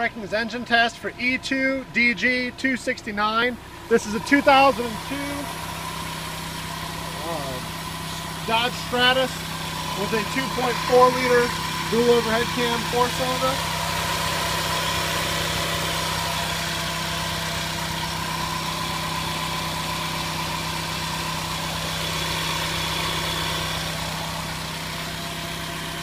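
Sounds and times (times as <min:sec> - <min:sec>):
car engine idling: 0:00.0 - 0:26.0.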